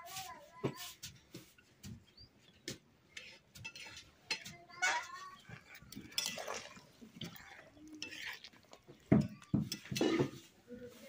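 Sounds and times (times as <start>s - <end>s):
metal ladle scraping a wok: 3.1s - 10.6s.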